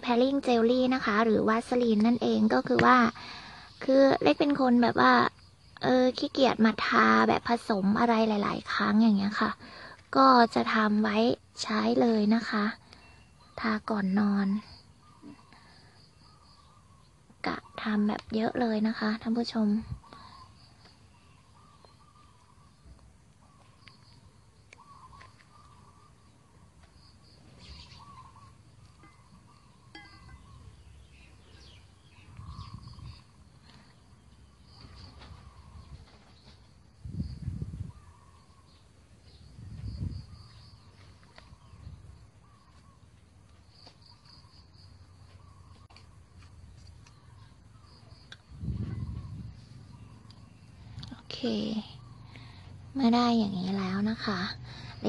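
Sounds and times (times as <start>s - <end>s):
faint bird calls: 12.5s - 18.0s, 19.0s - 55.0s
high chirping trills: 19.0s - 36.2s
short gliding bird calls: 24.8s - 26.2s, 27.5s - 33.2s.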